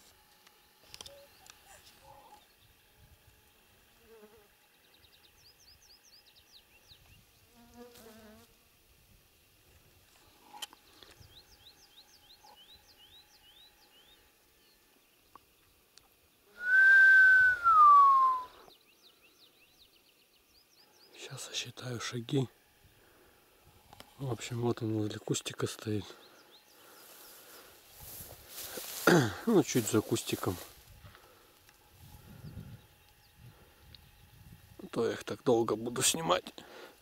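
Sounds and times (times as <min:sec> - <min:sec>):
songbird notes: 0:04.6 - 0:07.5, 0:10.2 - 0:21.9, 0:23.9 - 0:28.3, 0:29.4 - 0:36.4
human whistle: 0:16.6 - 0:18.7.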